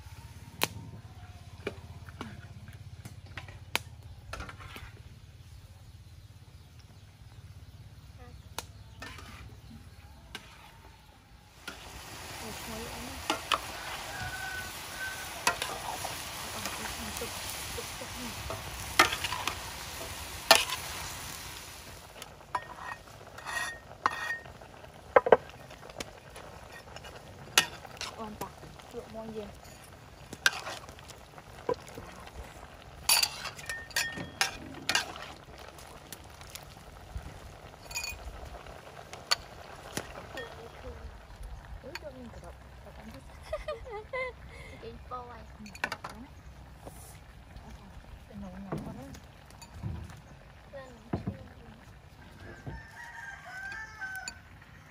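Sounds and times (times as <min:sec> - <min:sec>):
metal spatula scraping a wok: 0:04.4 - 0:05.0, 0:08.9 - 0:09.7, 0:10.3 - 0:10.8, 0:13.2 - 0:21.0, 0:22.5 - 0:24.6, 0:26.6 - 0:28.3, 0:29.5 - 0:31.0, 0:33.0 - 0:35.4
food sizzling: 0:08.4 - 0:54.9.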